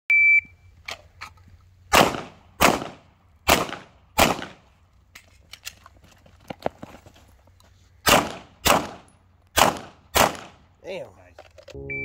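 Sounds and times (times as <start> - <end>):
shot timer beep: 0.1 - 0.5, 11.8 - 12.0
handgun shots echoing: 1.9 - 4.6, 8.1 - 10.6.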